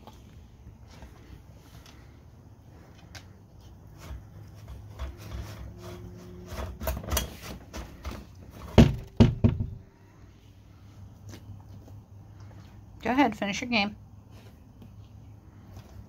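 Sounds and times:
loud knocks on metal tin: 8.7s - 9.8s.

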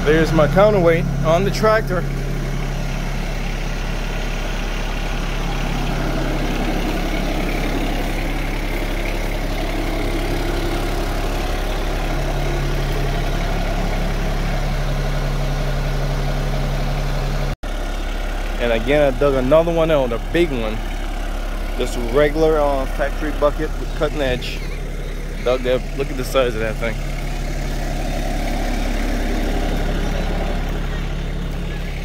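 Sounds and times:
tractor diesel engine idling: 0.0s - 32.0s.

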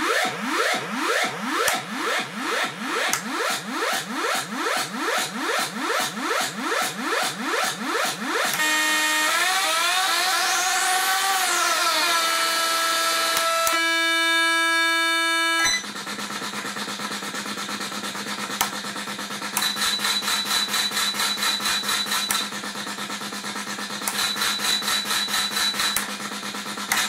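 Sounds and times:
buzzy synthesized tone: 0.0s - 15.8s.

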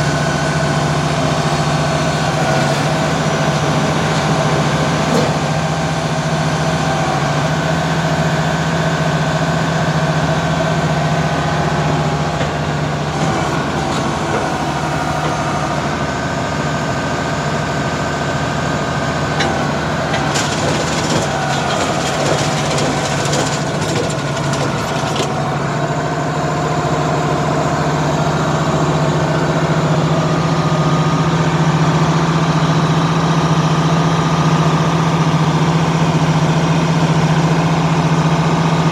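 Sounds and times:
engine idling: 0.0s - 38.9s
rattling and clicking: 19.4s - 25.4s.

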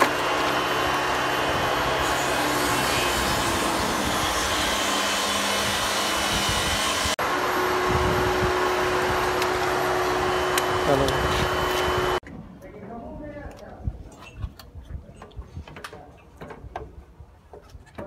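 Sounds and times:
fan whirring: 0.0s - 12.2s.

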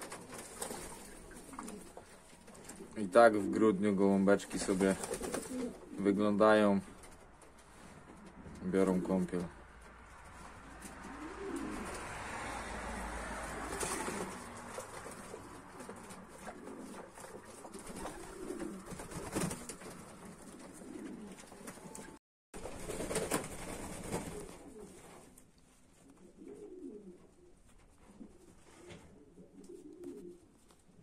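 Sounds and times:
wings flapping: 0.0s - 3.0s, 4.4s - 6.0s, 10.2s - 12.2s, 13.4s - 25.4s
pigeons cooing: 0.0s - 6.2s, 10.2s - 22.0s, 24.2s - 25.2s, 26.0s - 30.5s.

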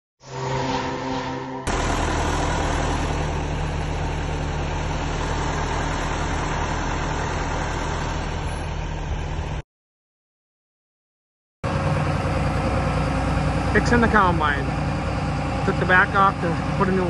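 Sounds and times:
heavy engine idling: 1.7s - 9.6s, 11.6s - 17.0s.

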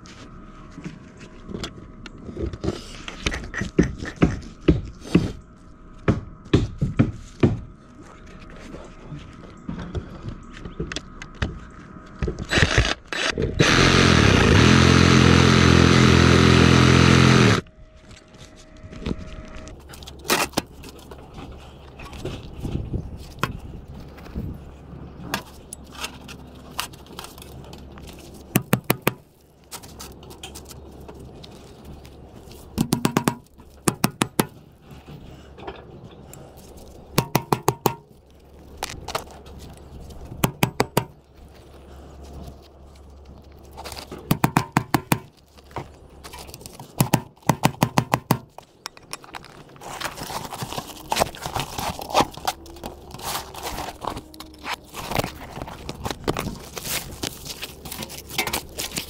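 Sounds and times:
reciprocating saw cutting: 12.5s - 17.6s
hammer strikes on metal: 32.8s - 34.6s, 37.2s - 38.0s, 44.3s - 45.3s.

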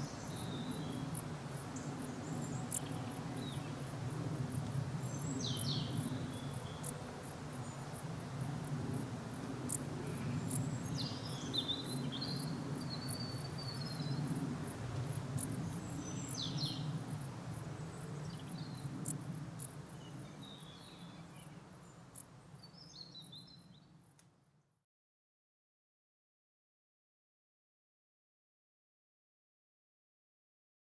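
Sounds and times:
crickets chirping: 0.0s - 24.6s.

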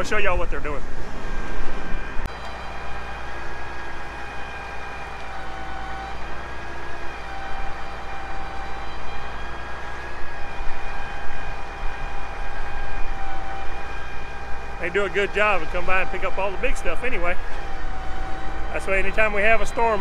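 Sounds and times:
heavy diesel engine running: 0.0s - 20.0s
high whine shifting pitch: 0.0s - 20.0s.

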